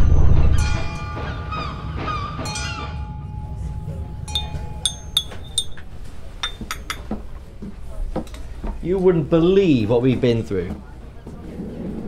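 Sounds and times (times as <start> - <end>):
music: 0.2 - 5.8
teaspoon clinking in teacup: 4.3 - 7.1.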